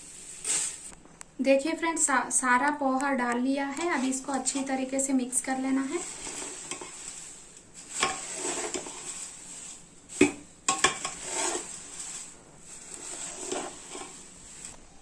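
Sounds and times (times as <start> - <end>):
dry rice flakes scraping and rustling: 0.0 - 1.0, 3.7 - 15.0
spoon clinking against pot: 10.7 - 11.2.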